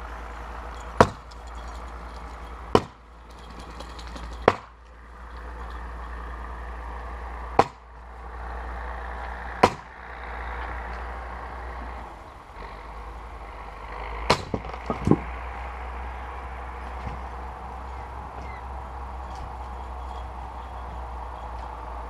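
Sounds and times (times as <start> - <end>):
maul striking wood: 0.8 - 1.4, 2.7 - 3.0, 4.2 - 4.9, 7.5 - 8.0, 9.4 - 10.0, 14.2 - 15.3.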